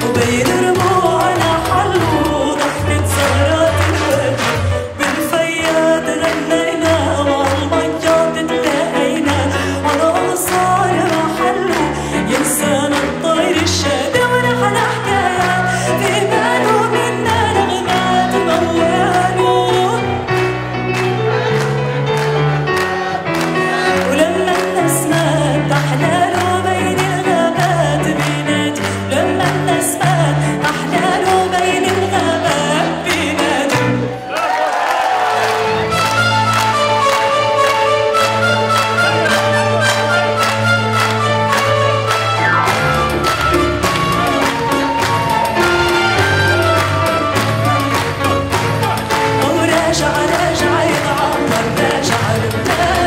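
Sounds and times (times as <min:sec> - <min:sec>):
woman singing into microphone: 0:00.0 - 0:20.3, 0:23.8 - 0:34.2, 0:49.1 - 0:53.0.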